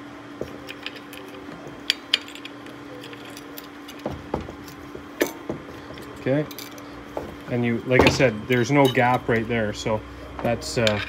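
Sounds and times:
faint steady hum: 0.0s - 11.0s
metal bolts clicking and clinking: 0.6s - 6.9s, 7.9s - 9.5s, 10.7s - 11.0s.

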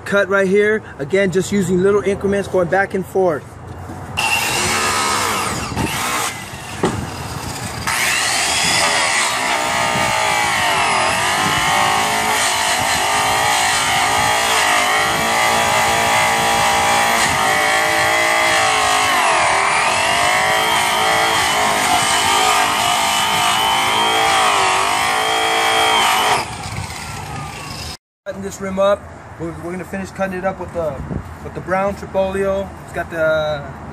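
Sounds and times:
polisher whining on metal: 4.2s - 27.6s.

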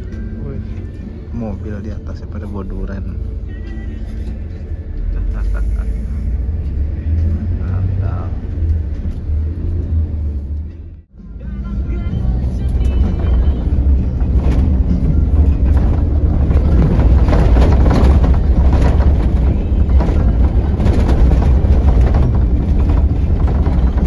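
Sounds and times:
diesel engine drone: 0.0s - 24.0s
road rumble: 0.0s - 24.0s
bodywork rattles and knocks: 12.8s - 24.0s.

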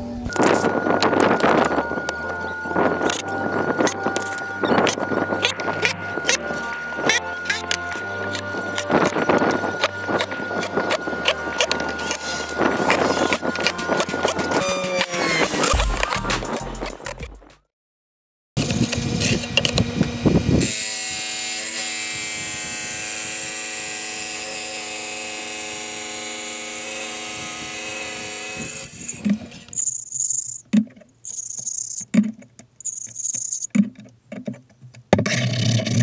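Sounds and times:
wet tile saw cutting tile: 3.0s - 17.1s, 18.6s - 29.9s
rubbing stone scraping tile edges: 4.2s - 17.2s, 35.2s - 36.0s.

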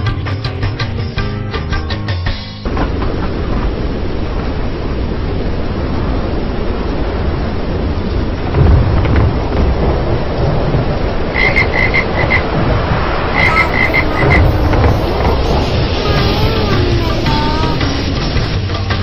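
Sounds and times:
steady rain: 2.6s - 19.0s
thunder rumble: 2.6s - 19.0s
frogs croaking: 11.2s - 12.7s, 13.3s - 18.7s.

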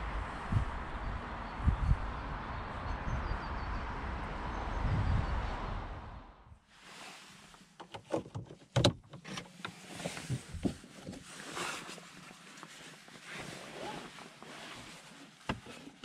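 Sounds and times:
seatbelt webbing rustling: 6.8s - 16.0s
knocks and rustling in seat: 7.8s - 11.9s.

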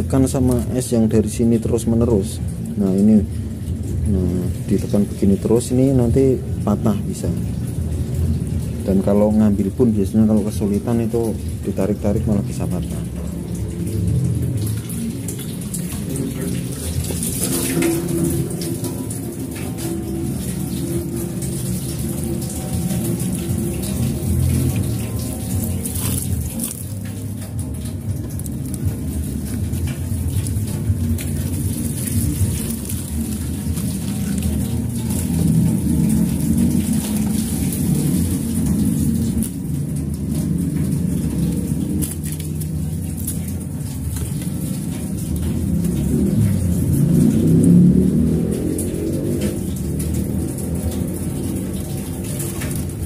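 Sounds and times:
tap water splashing on ice: 12.4s - 53.0s.

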